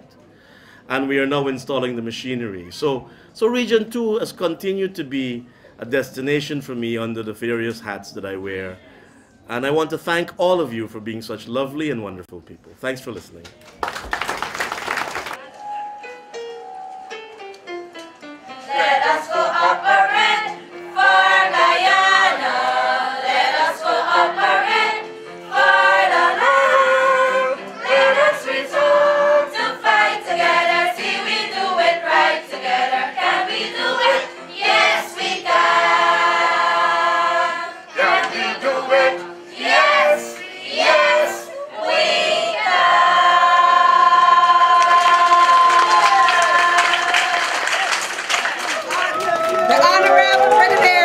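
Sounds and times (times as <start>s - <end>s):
girls choir singing: 18.4s - 48.2s.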